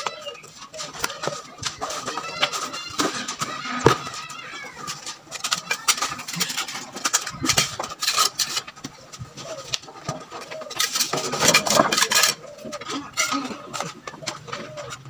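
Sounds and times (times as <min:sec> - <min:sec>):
trowel clinking: 0:10.5 - 0:13.9.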